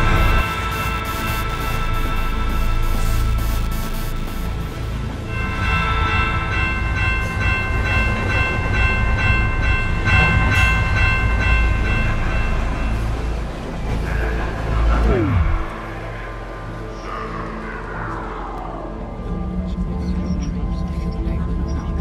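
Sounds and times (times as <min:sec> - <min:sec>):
train rumbling: 0:00.0 - 0:17.7
multi-tone warning bell ringing: 0:05.2 - 0:13.9.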